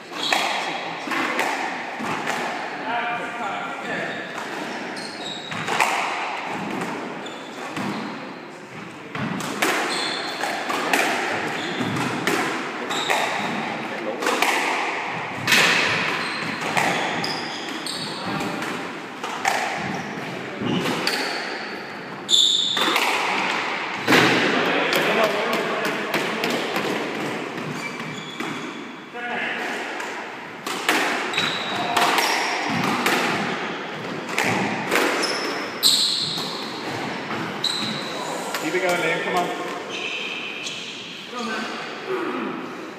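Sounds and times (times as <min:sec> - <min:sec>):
shoes squeaking on wooden floor: 0:00.1 - 0:00.5, 0:03.9 - 0:05.8, 0:09.9 - 0:10.5, 0:12.9 - 0:13.7, 0:15.4 - 0:18.6, 0:22.2 - 0:22.9, 0:27.6 - 0:28.9, 0:31.3 - 0:34.2, 0:35.2 - 0:41.0
squash ball hits: 0:09.2 - 0:21.6, 0:22.5 - 0:28.8, 0:29.6 - 0:38.0.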